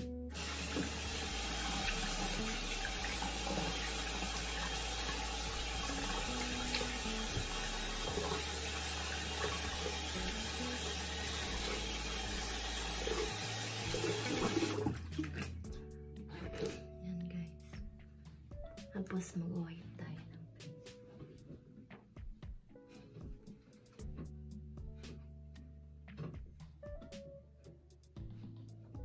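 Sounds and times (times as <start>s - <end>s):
tap water running into sink: 0.3s - 15.6s.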